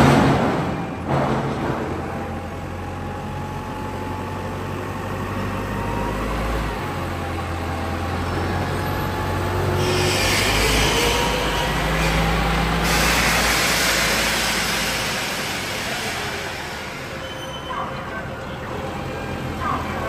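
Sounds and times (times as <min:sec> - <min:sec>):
forklift engine humming: 0:00.0 - 0:20.0
hiss: 0:11.9 - 0:17.2.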